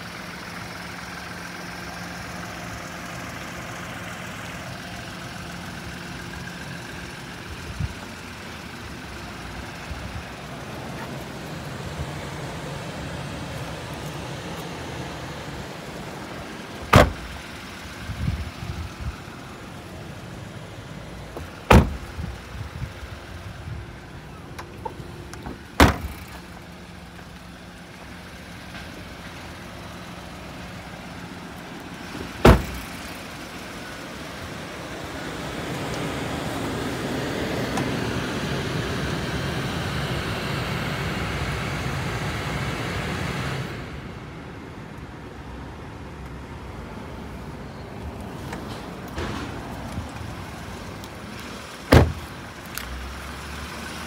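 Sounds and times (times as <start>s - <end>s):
car doors shutting: 16.4s - 17.6s, 21.3s - 22.4s, 24.5s - 26.5s, 32.1s - 33.2s, 51.7s - 52.8s.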